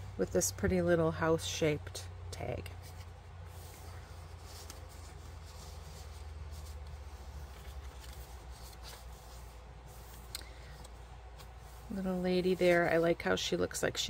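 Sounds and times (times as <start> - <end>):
low steady hum: 0.0 - 14.0
soft scraping of paper: 2.6 - 13.8
paper rustling: 2.7 - 13.4.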